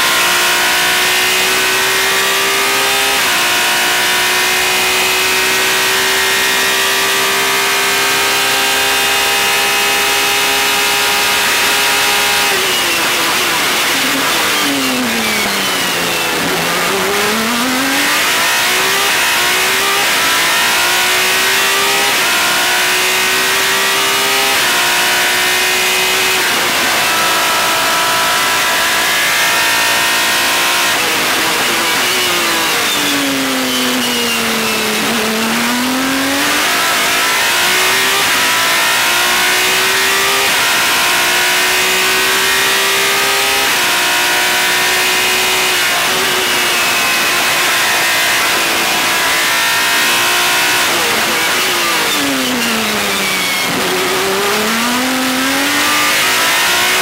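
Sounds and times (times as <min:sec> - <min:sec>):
racing engine revving through gears: 0:00.0 - 0:57.0.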